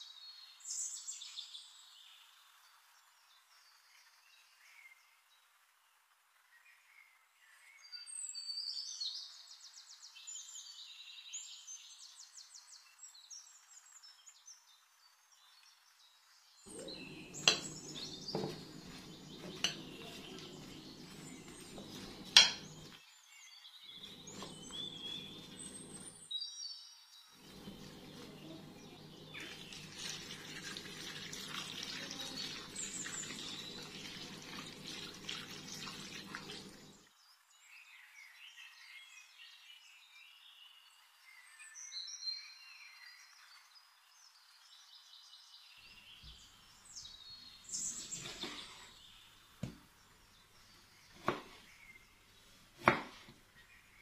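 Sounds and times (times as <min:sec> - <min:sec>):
liquid pouring: 0:16.7 - 0:22.9, 0:27.4 - 0:37.1
spoon tossing vegetables in dish: 0:16.7 - 0:23.0, 0:24.0 - 0:26.2, 0:27.4 - 0:36.9
spoon clinking against glass: 0:17.3 - 0:18.6, 0:21.8 - 0:22.9.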